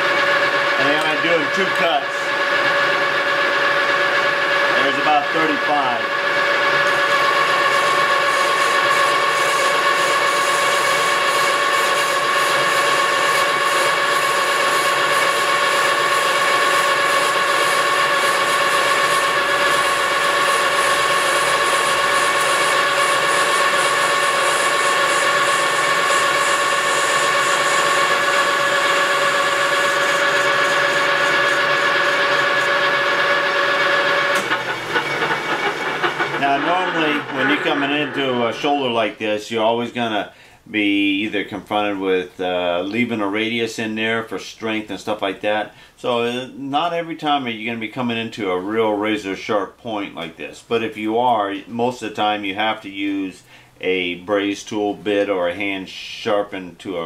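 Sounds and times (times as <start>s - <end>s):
metal lathe whine: 0.0s - 38.9s
lathe running noise: 0.0s - 39.2s.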